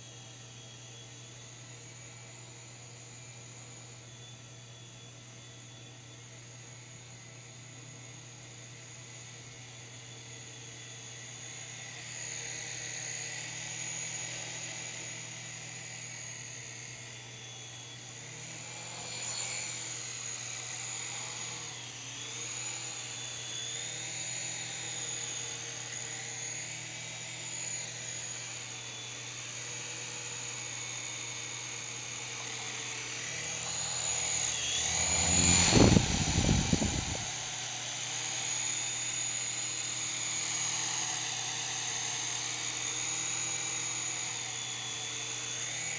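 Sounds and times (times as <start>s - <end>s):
toy helicopter rotors whining: 31.5s - 38.5s
low rushing noise: 33.7s - 37.4s.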